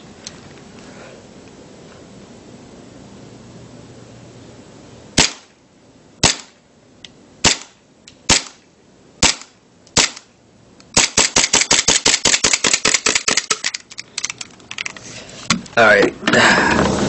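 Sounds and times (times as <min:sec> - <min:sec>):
airsoft pistol shots: 0:05.2 - 0:05.6, 0:06.2 - 0:06.6, 0:07.4 - 0:08.6, 0:09.2 - 0:10.3, 0:11.0 - 0:13.5.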